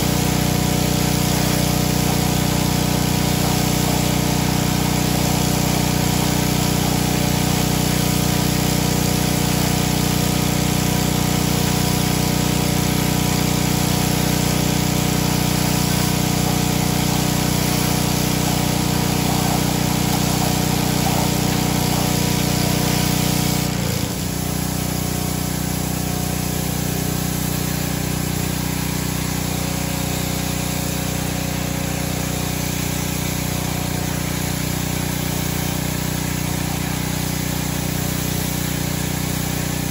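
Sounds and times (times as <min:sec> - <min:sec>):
pressure washer running: 0:00.0 - 0:39.9
water spraying hiss: 0:14.3 - 0:39.9.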